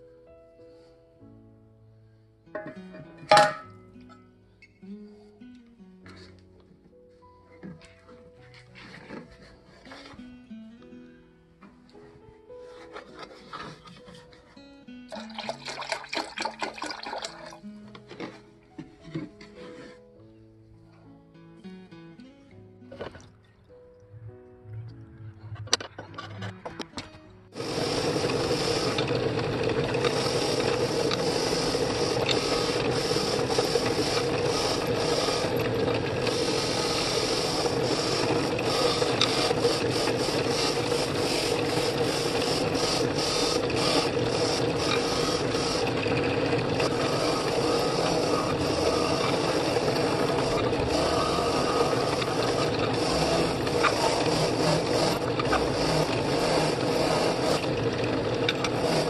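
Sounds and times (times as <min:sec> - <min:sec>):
drill press motor hum: 0:27.5 - 0:59.0.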